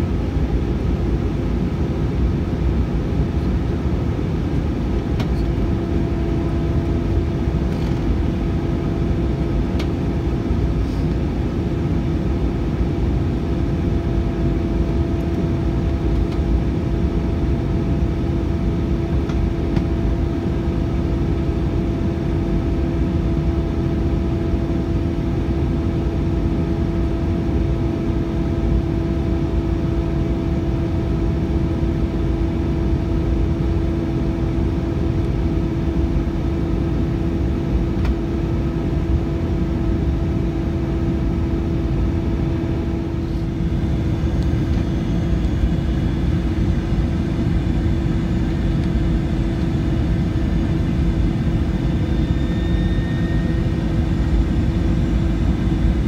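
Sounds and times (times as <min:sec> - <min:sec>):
airplane cabin engine rumble: 0:00.0 - 0:56.0
faint high whine: 0:12.2 - 0:56.0.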